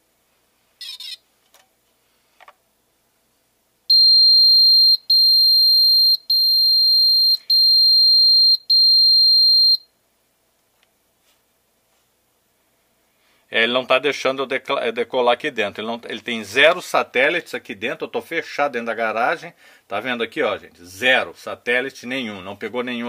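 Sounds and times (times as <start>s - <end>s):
high-pitched electronic beeps: 3.9s - 9.8s.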